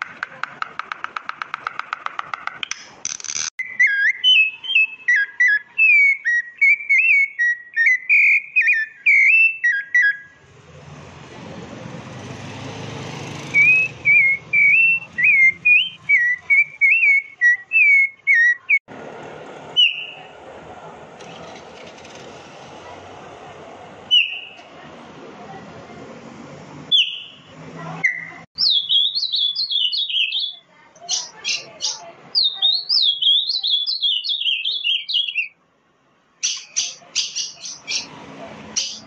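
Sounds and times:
bird clicking trill: 0:00.0 - 0:03.5
bird whistling: 0:03.6 - 0:10.4, 0:13.5 - 0:18.8, 0:19.8 - 0:20.3, 0:24.1 - 0:24.6, 0:26.9 - 0:27.4, 0:28.0 - 0:35.5, 0:36.4 - 0:38.1.

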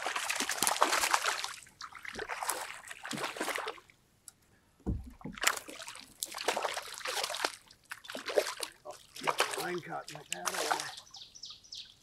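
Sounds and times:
water splashing and sloshing: 0:00.0 - 0:04.0, 0:04.8 - 0:11.2
dull thump: 0:04.8 - 0:05.4.

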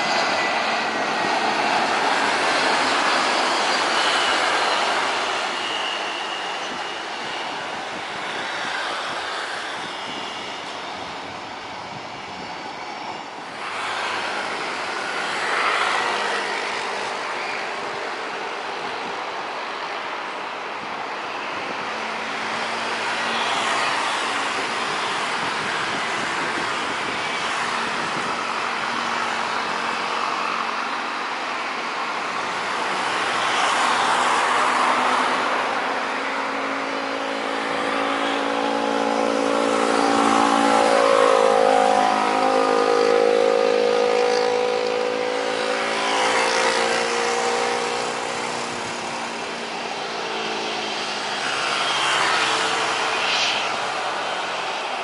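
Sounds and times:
jet engines taxiing: 0:00.0 - 0:55.0.

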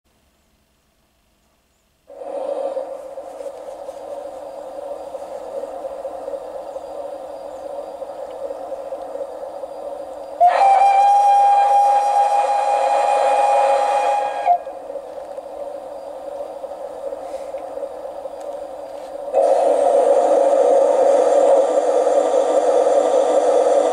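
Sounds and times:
steady background hiss: 0:00.1 - 0:23.9
steam whistle: 0:10.4 - 0:14.8, 0:19.3 - 0:23.9.

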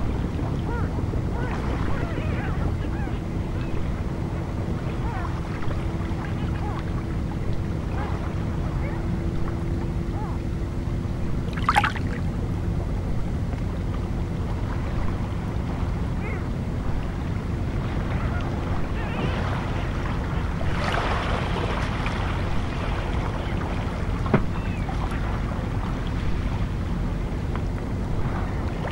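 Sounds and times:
low rumble of water: 0:00.0 - 0:28.9
small waves lapping: 0:00.0 - 0:28.9
sharp water splash: 0:11.4 - 0:12.2
water washing over stones: 0:11.5 - 0:12.2.

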